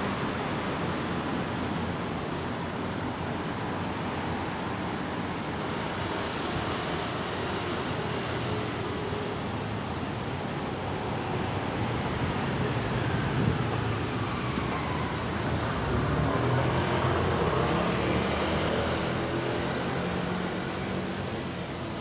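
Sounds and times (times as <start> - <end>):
cars driving past: 11.9 - 22.0.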